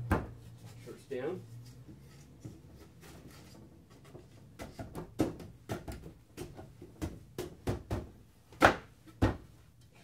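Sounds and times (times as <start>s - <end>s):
wooden boards knocking and clattering: 3.9s - 9.5s.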